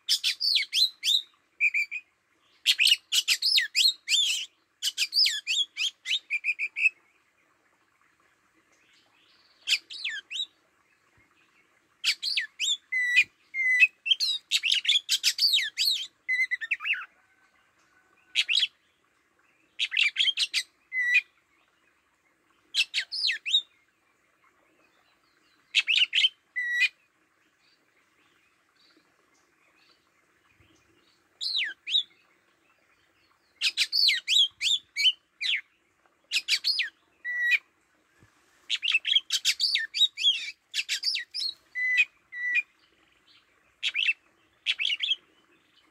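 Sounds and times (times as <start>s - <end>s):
bird singing whistles and chirps: 12.0s - 17.0s, 33.6s - 35.6s, 38.7s - 42.7s.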